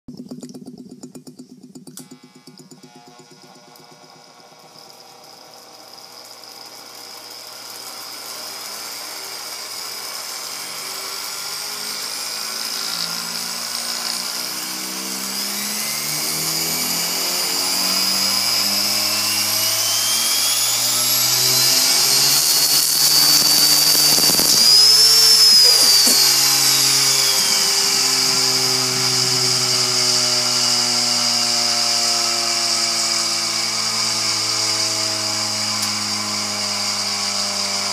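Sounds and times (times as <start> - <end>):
small electric motor whine: 1.2 - 37.9.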